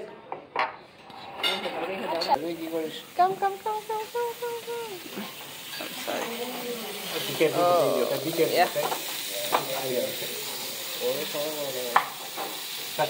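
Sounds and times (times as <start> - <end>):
dishes clinking: 0.6 - 2.4, 5.2 - 6.4
chicken sizzling on hot plate: 2.1 - 13.0.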